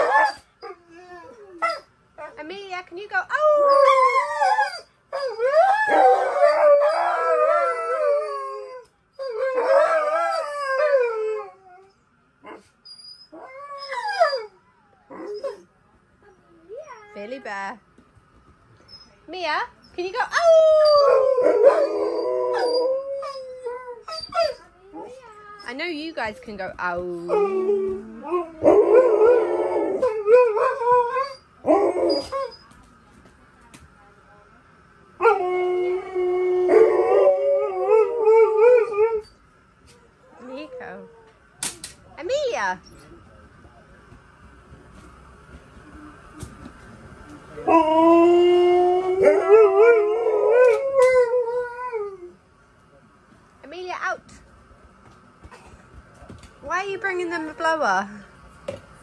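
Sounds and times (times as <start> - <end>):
dogs howling: 3.3 - 12.6, 20.3 - 25.1, 27.2 - 32.6, 35.2 - 39.4, 47.6 - 52.4.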